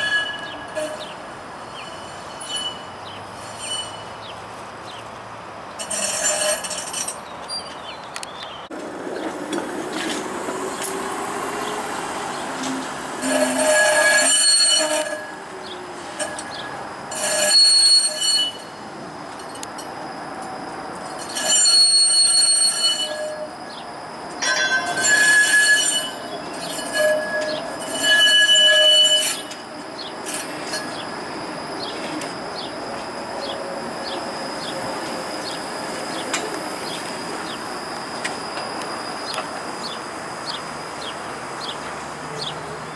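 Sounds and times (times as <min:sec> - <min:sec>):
streetcar wheels squealing: 0:00.0 - 0:05.0, 0:05.7 - 0:42.9
streetcar running noise: 0:00.0 - 0:42.9.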